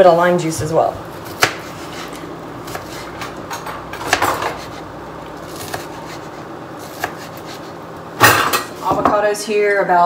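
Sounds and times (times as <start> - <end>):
knife scraping on cutting board: 1.3 - 7.8.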